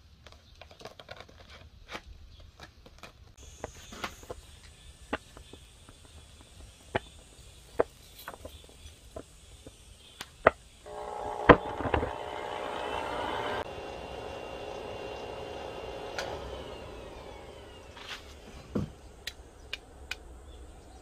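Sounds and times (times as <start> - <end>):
air blower whirring: 10.9 - 20.9.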